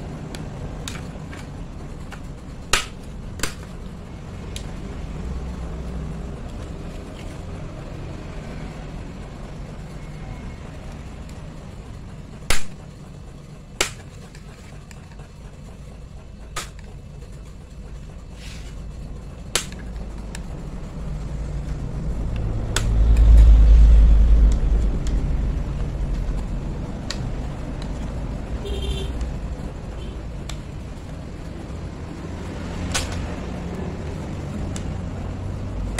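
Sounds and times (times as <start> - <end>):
low rumble: 17.2 - 35.9
plastic clips snapping loose: 19.6 - 20.5, 22.3 - 23.3, 32.9 - 33.3.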